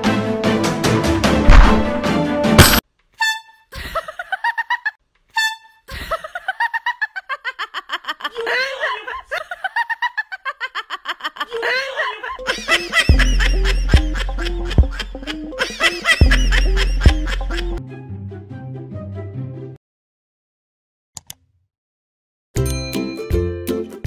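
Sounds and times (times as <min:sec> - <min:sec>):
background music: 0:00.0 - 0:02.8, 0:12.2 - 0:19.8, 0:22.6 - 0:24.0
high-pitched comedy laughter: 0:03.2 - 0:17.8.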